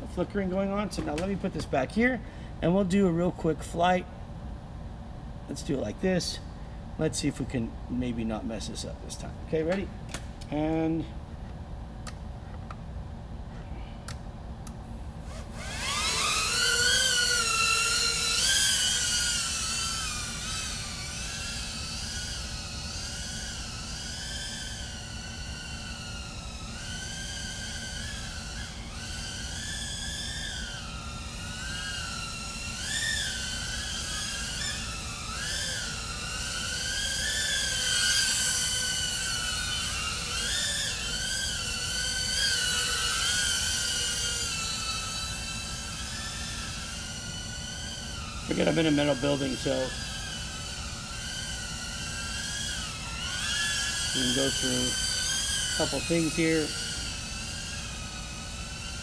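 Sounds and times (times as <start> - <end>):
drone motors whining: 15.2 - 59.0.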